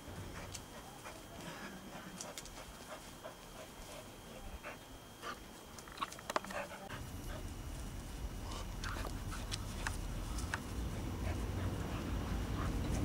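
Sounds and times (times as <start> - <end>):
dog panting: 0.2 - 5.5, 6.3 - 7.6, 8.4 - 13.0.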